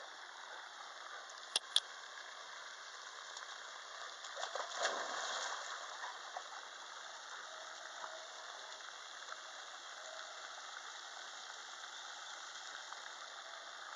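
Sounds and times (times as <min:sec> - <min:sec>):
dog splashing into water: 0:04.4 - 0:06.1.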